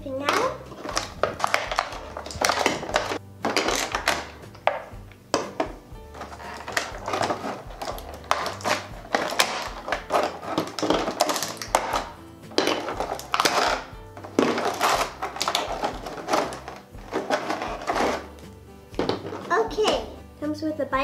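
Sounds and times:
background music: 0.0s - 21.0s
plastic packaging crinkling: 0.6s - 4.4s, 6.1s - 18.4s
plastic toy molds clicking: 14.4s - 18.2s.

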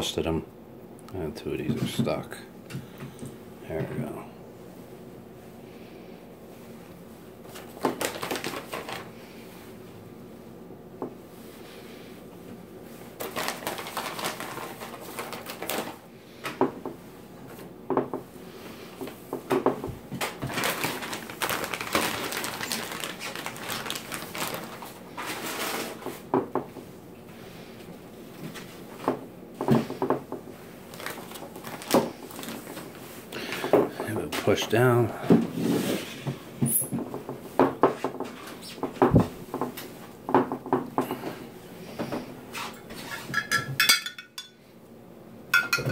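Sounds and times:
plastic bag rustling: 6.7s - 9.8s, 12.9s - 16.1s, 20.1s - 26.3s, 29.9s - 36.9s.

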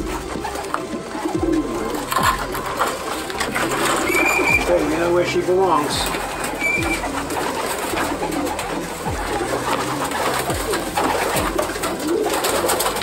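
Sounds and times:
pigeons cooing: 0.0s - 13.0s.

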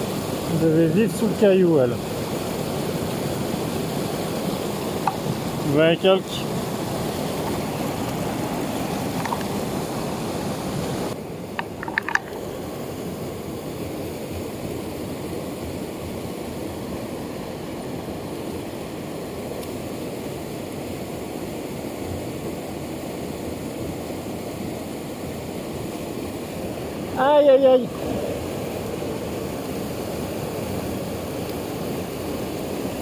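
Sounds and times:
water rushing over rocks: 0.0s - 18.5s.

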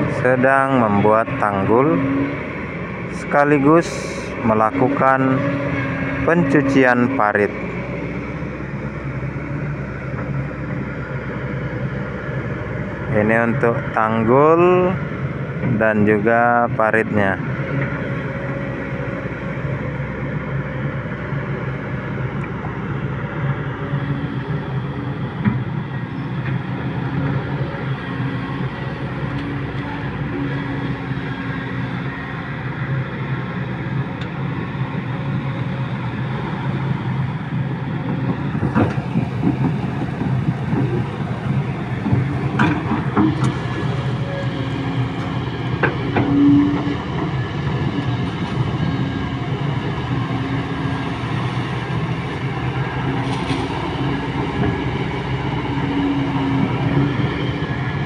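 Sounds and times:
excavator diesel engine: 0.0s - 58.0s.

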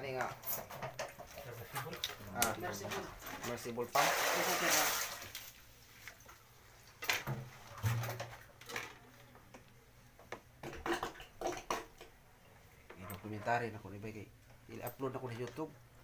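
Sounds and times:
water splashes: 3.1s - 6.4s.

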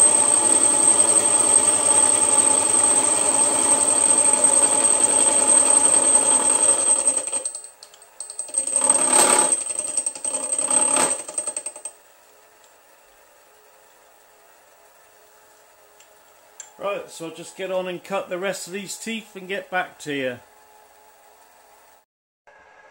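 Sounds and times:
milling machine cutting metal: 0.0s - 7.5s, 8.4s - 11.8s.

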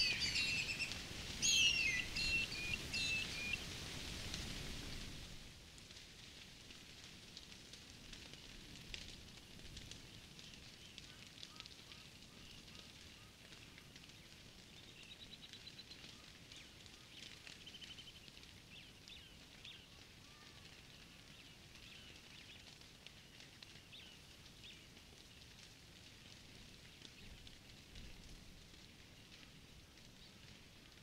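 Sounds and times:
bird trills: 0.0s - 3.6s
soft crackles: 0.0s - 31.0s.

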